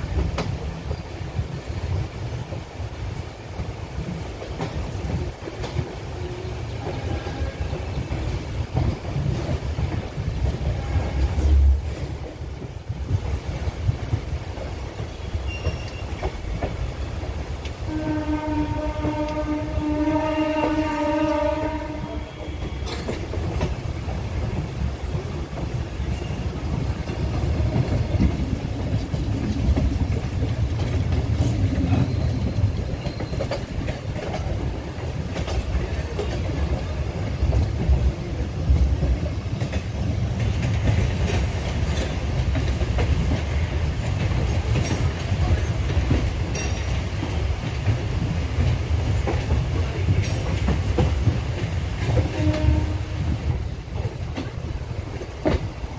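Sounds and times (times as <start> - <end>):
train wheels rumbling on track: 0.0 - 55.9
wheels clicking over rail joints: 22.2 - 55.9.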